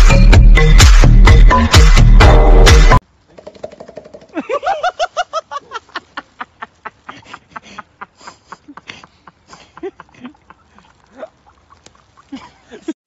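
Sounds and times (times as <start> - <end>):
faint human voice sounds: 11.1 - 11.4.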